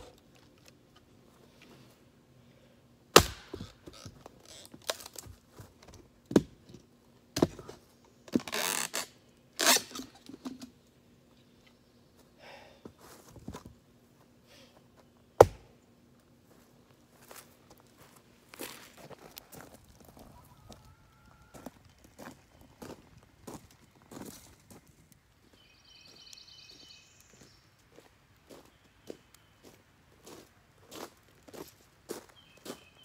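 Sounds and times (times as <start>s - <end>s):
axe chopping into log: 3.2s - 3.8s, 15.4s - 15.7s.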